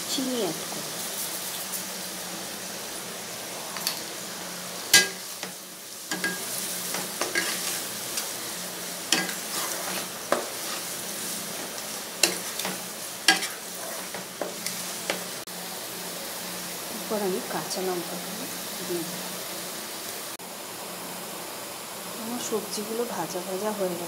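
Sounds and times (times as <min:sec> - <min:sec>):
vegetables sizzling in oil: 0:00.0 - 0:24.0
wooden spatula scraping a pan: 0:06.1 - 0:08.3, 0:09.1 - 0:15.3.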